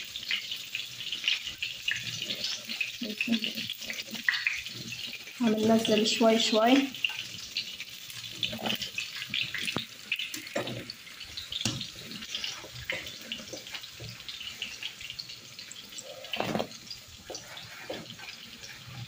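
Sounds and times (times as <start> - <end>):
liquid sloshing: 16.0 - 19.0.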